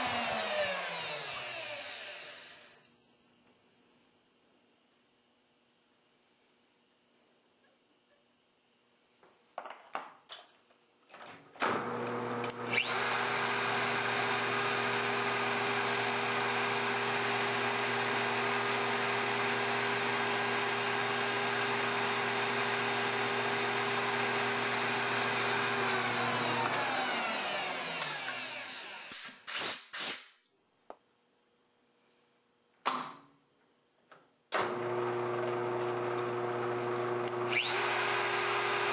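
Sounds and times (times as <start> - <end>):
spindle motor running: 11.8 - 29.0, 34.7 - 38.9
compressed air blasts: 29.1 - 30.4.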